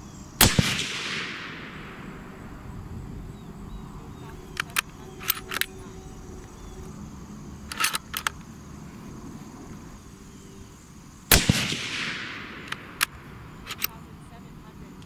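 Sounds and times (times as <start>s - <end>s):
suppressed rifle shot: 0.4s - 2.6s, 11.3s - 13.8s
gunshot echo: 0.4s - 2.7s, 11.3s - 13.4s.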